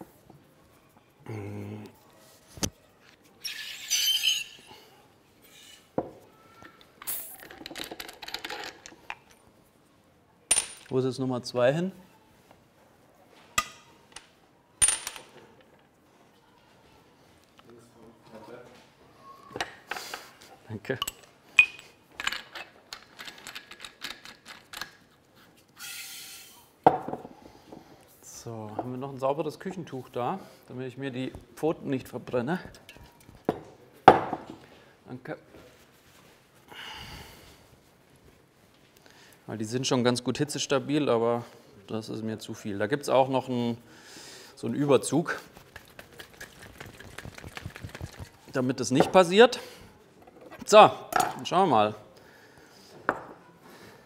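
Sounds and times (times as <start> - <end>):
high whistling gas hiss: 25.8 - 26.7.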